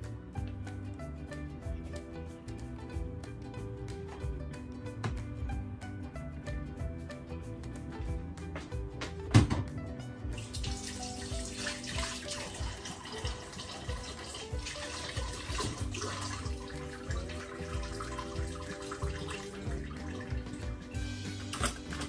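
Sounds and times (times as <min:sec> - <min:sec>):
background music: 0:00.0 - 0:22.0
water running from a tap: 0:10.4 - 0:22.0.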